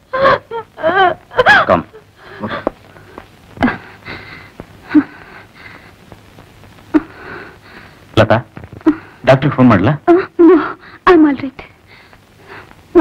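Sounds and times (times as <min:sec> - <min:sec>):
woman sobbing and gasping: 0:00.0 - 0:02.7, 0:03.6 - 0:06.0, 0:06.9 - 0:07.6, 0:08.8 - 0:09.2, 0:10.1 - 0:11.1
woman crying out: 0:00.1 - 0:01.7.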